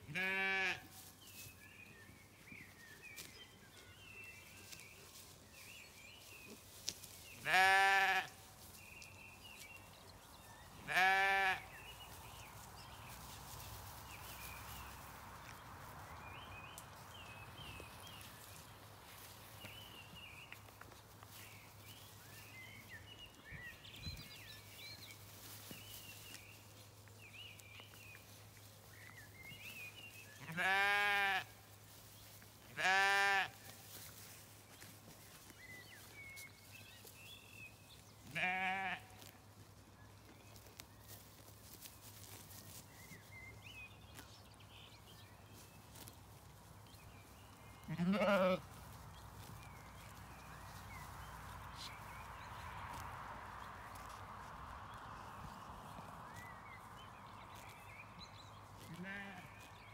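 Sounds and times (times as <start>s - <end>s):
sheep bleating: 0.1s - 0.9s, 7.4s - 8.3s, 10.8s - 11.7s, 30.4s - 31.5s, 32.8s - 33.6s, 38.3s - 39.2s, 47.8s - 48.7s, 58.9s - 59.6s.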